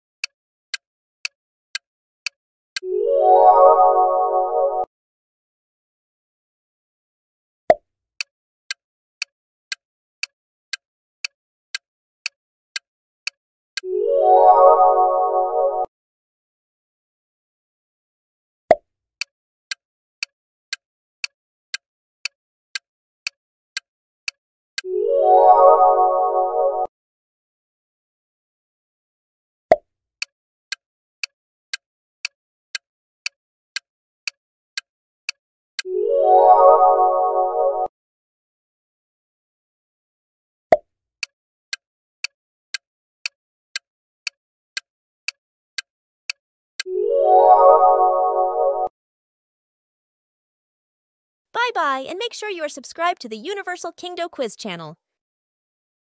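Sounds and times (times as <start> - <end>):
clock-like ticks: 0.7 - 1.4, 8.2 - 13.4, 31.7 - 35.4, 41.7 - 46.4, 51.6 - 54.9
clock ticking: 51.6 - 54.9.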